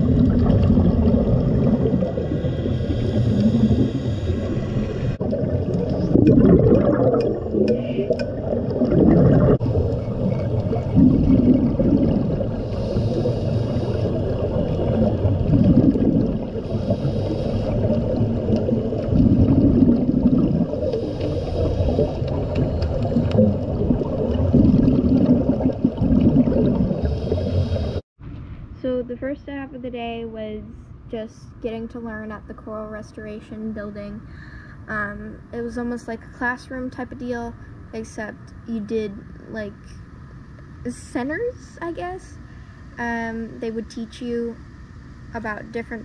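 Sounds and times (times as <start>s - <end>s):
bubbles gurgling underwater: 0.0s - 28.0s
regulator inhalation hiss: 2.3s - 5.2s, 12.6s - 14.5s, 16.6s - 18.0s, 20.9s - 22.3s, 27.0s - 28.0s.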